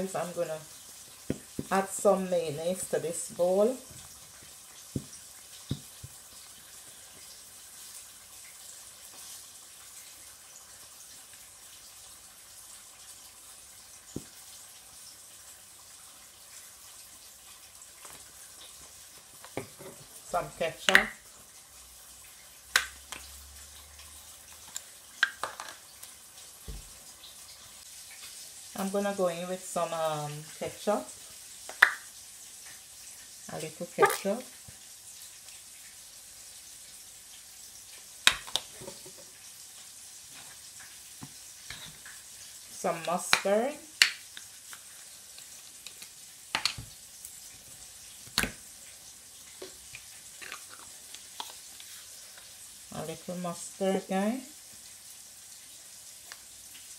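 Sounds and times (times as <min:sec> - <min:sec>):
fish sizzling in oil: 0:00.0 - 0:56.9
plastic bottle knocking on countertop: 0:01.3 - 0:01.8, 0:05.0 - 0:06.2.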